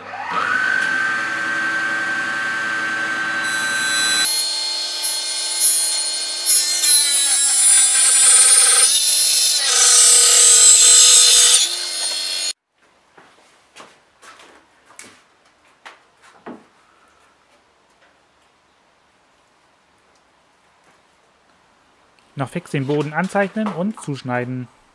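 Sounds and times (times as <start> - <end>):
table saw cutting wood: 0.0 - 12.6.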